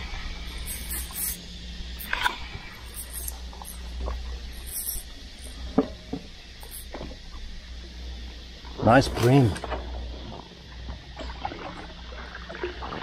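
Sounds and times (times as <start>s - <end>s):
small squeaks: 0.4s - 1.4s, 2.0s - 5.7s, 6.6s - 6.9s.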